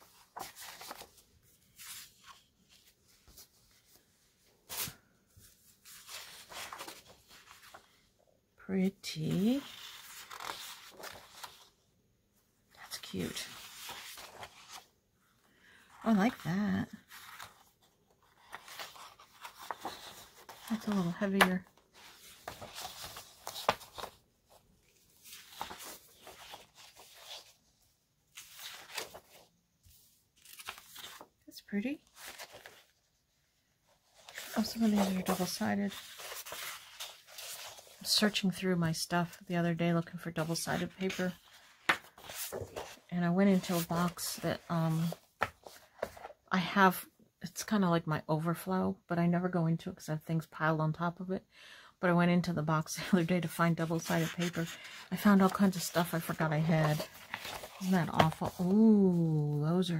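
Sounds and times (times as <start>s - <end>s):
paper sheets rustling and sliding: 0.0s - 4.1s, 4.7s - 7.9s, 9.6s - 11.7s, 13.4s - 14.8s, 17.1s - 24.6s, 25.2s - 27.5s, 28.3s - 29.5s, 30.4s - 31.3s, 32.1s - 32.9s, 34.1s - 38.4s, 40.4s - 46.3s, 53.8s - 59.0s.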